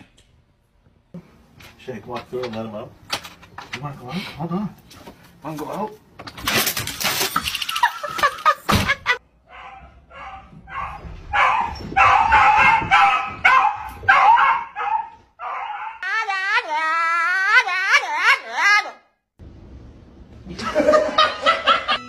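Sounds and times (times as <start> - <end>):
clattering rattling noise: 1.5 - 3.9
dog barking: 9.5 - 16.0.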